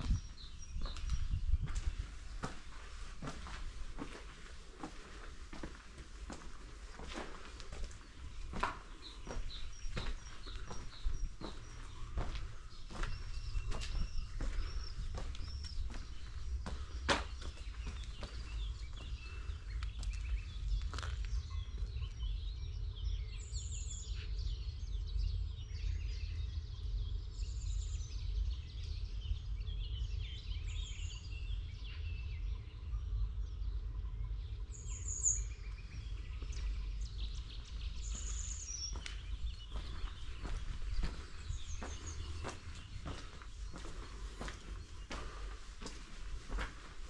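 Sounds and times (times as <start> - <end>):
faint footstep: 0.0 - 21.3, 37.3 - 47.0
small birds chirping: 0.0 - 47.0.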